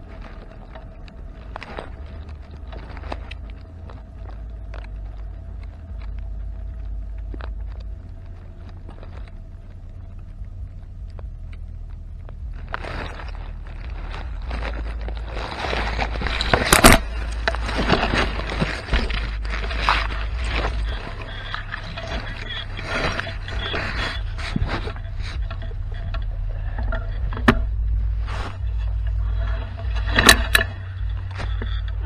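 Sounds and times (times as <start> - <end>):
engine crackling burst: 0.0 - 32.0
paramotor engine running: 14.6 - 32.0.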